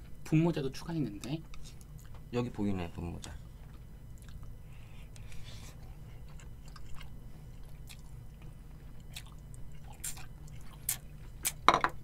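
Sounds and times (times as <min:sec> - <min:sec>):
wet chewing and slurping: 0:05.1 - 0:11.6.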